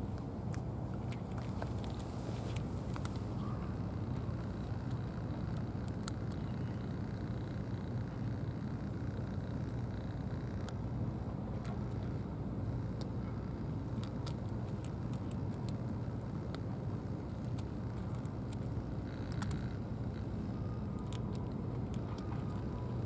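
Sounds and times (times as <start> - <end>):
distant road traffic rumble: 0.0 - 23.0
cat crunching dry kibble: 0.5 - 7.4, 12.8 - 23.0.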